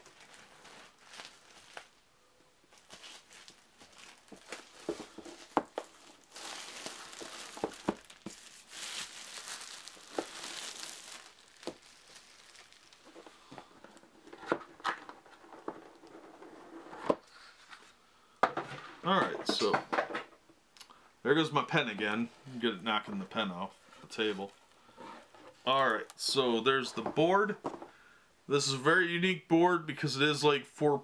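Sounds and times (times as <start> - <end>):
plastic shrink-wrap crinkling: 0.0 - 2.0, 2.7 - 16.6, 23.0 - 26.8.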